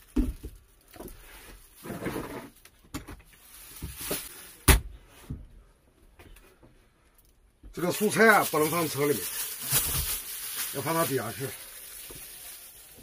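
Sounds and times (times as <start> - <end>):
shopping bags handled: 3.2 - 4.6, 7.8 - 13.0.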